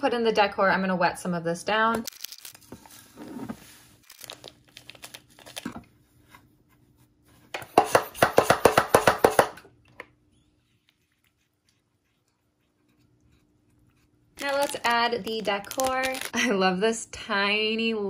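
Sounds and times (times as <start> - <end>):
substrate rustling and crackling: 2.1 - 5.8, 14.4 - 16.3.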